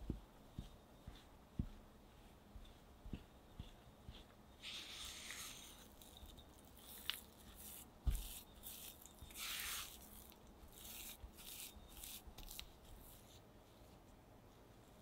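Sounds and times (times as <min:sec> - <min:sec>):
spatula scraping dough in glass bowl: 0:04.6 - 0:13.1.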